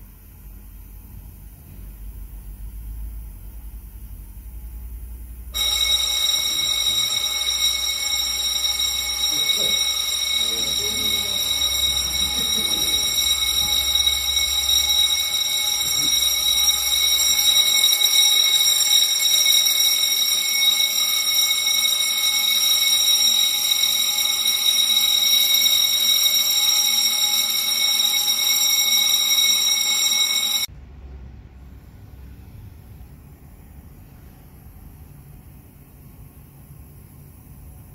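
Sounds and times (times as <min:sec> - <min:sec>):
fire alarm ringing: 0:05.5 - 0:30.7.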